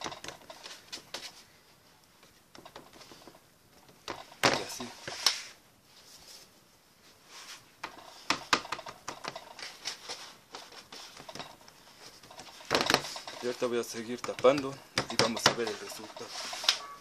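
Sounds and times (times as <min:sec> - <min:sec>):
hands tapping dough on tray: 0:14.1 - 0:15.8.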